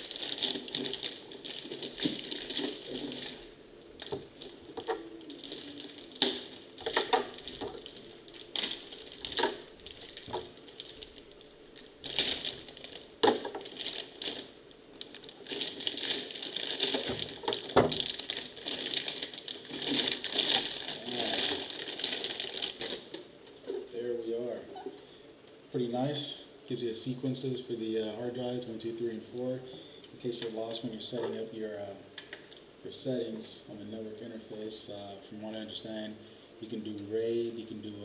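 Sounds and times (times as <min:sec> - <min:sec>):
plastic bag crinkling: 0:00.0 - 0:25.1.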